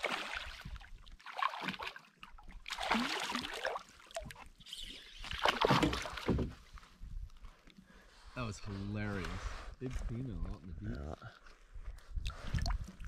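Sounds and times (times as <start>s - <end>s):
fish thrashing and splashing: 0.0s - 6.5s.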